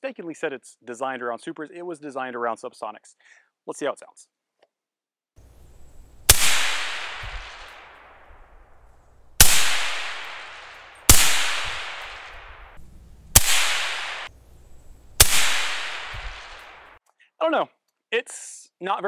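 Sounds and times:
suppressed rifle shots: 6.2 - 8.6, 9.4 - 14.3, 15.2 - 17.0
long echo of gunshots: 6.3 - 8.6, 9.4 - 14.3, 15.2 - 17.0.

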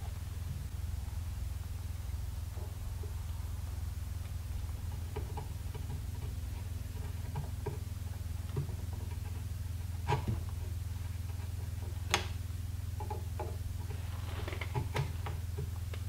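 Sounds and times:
steady low hum: 0.0 - 16.0
chisel clicking and scraping wood: 4.2 - 16.0.

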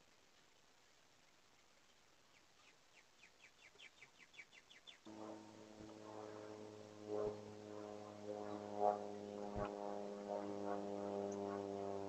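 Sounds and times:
steady low hum: 4.8 - 12.0.

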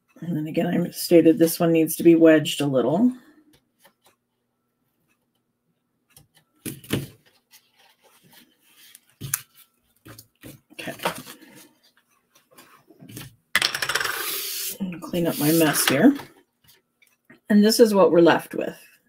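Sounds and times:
paper rustling: 7.0 - 13.2.

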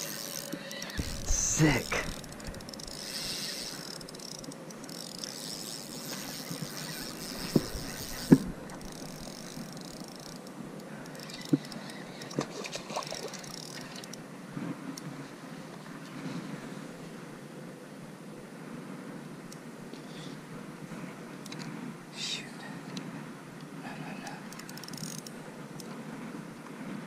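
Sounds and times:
fishing reel winding hiss: 0.0 - 12.3, 13.4 - 14.2, 24.5 - 25.3.

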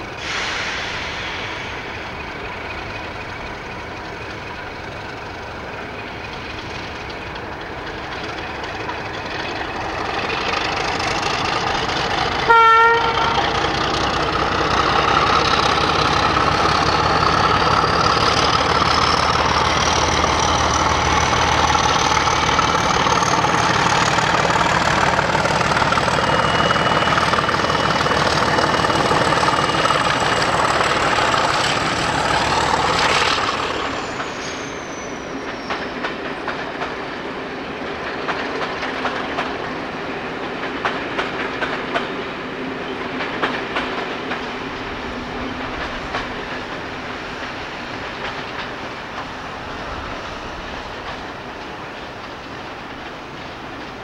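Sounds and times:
locomotive engine running with whine: 0.0 - 54.0
diesel locomotive horn blast: 12.3 - 13.7.

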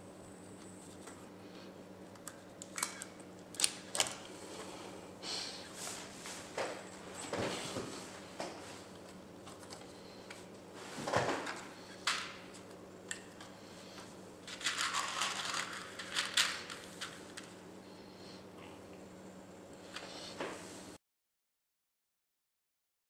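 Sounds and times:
rattling and crinkling: 14.5 - 17.4.

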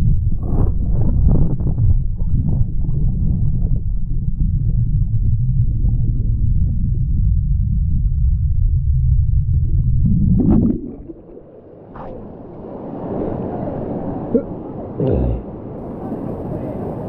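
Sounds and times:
muffled underwater river rumble: 0.0 - 17.0
water gurgling: 8.9 - 12.3.

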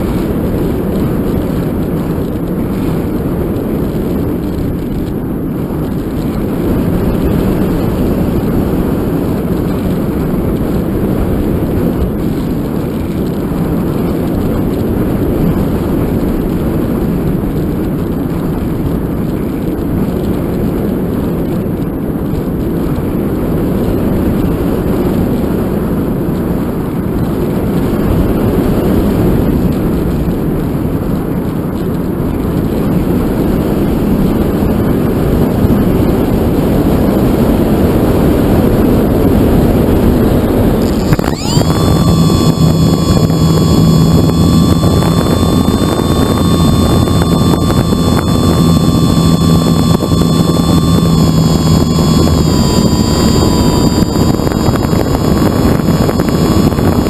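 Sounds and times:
airflow rushing with wind noise: 0.0 - 57.0
model plane motor whining: 40.8 - 57.0.

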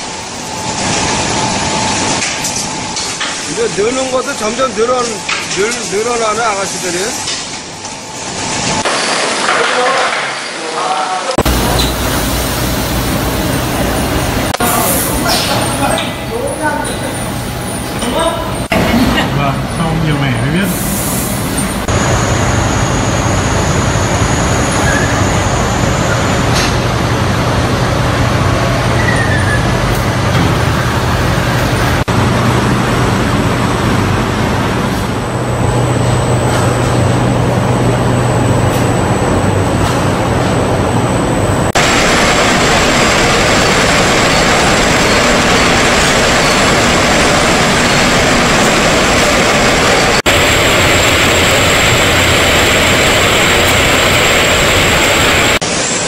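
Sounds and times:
production line machinery running: 0.0 - 56.0
thin high whine: 35.6 - 56.0.

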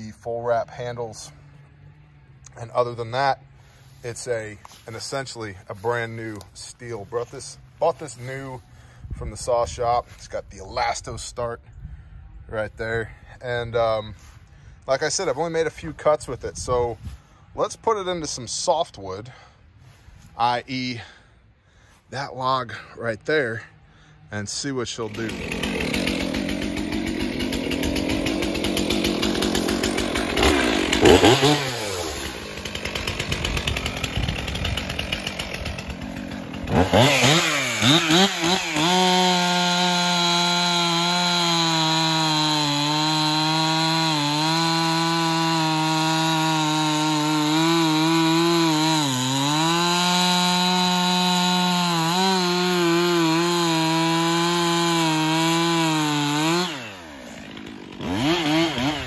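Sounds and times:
chainsaw cutting log: 0.0 - 11.3, 24.3 - 59.0.

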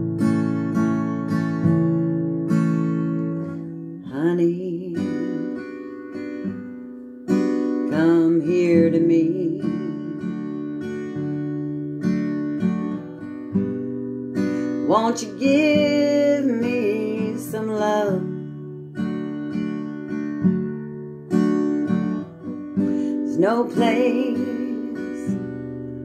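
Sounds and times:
acoustic guitar chords: 0.0 - 26.0
woman singing: 3.9 - 6.0, 7.7 - 10.7, 14.6 - 18.7, 22.0 - 26.0.

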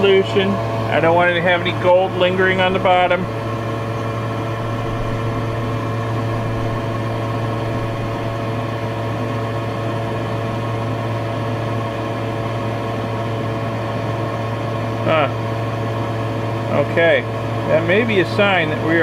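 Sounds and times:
exhaust fan humming: 0.0 - 19.0.

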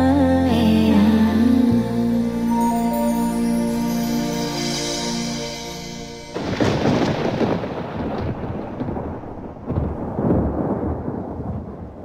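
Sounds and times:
song music: 0.0 - 7.6
rain hissing: 0.0 - 11.1
rolling thunder: 6.4 - 12.0.

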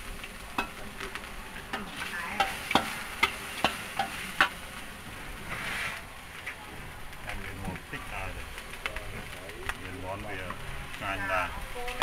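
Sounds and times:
frying sizzle: 0.0 - 12.0
metal spatula scraping a wok: 1.7 - 4.6, 5.4 - 6.1.

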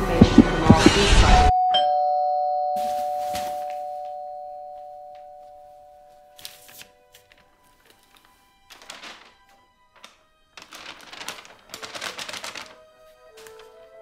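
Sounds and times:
two-tone doorbell chime: 1.5 - 6.4.

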